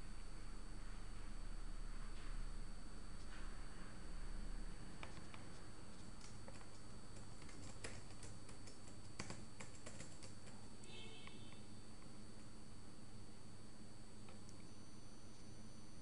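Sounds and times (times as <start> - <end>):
computer keyboard typing: 5.0 - 12.5.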